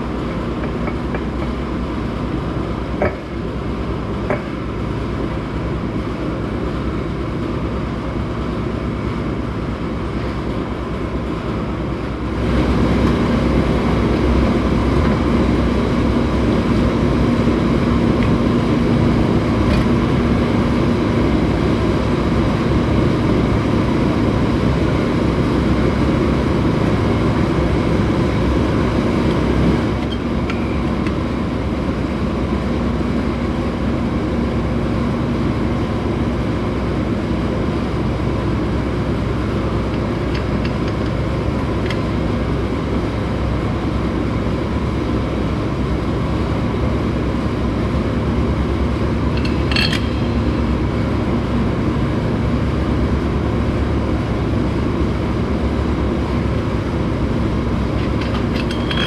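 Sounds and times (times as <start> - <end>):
low mechanical drone: 0.0 - 59.0.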